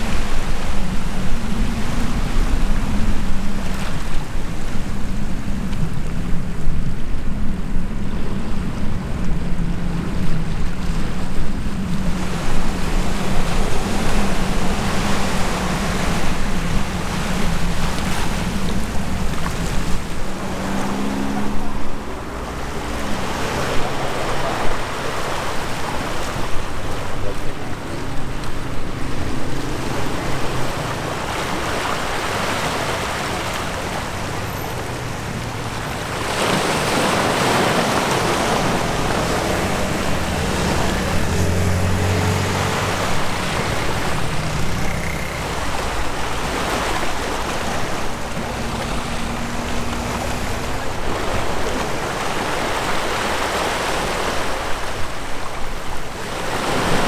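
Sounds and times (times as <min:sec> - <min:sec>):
ship engine drone: 0:00.0 - 0:57.0
waves washing on shore: 0:00.0 - 0:57.0.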